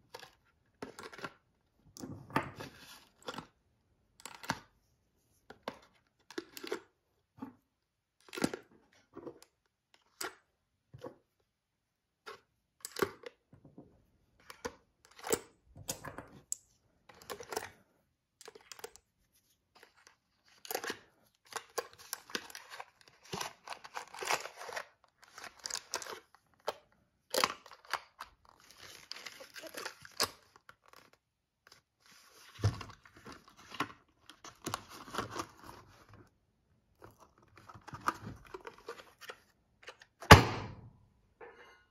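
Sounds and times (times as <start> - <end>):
box closing thump: 40.2 - 40.9.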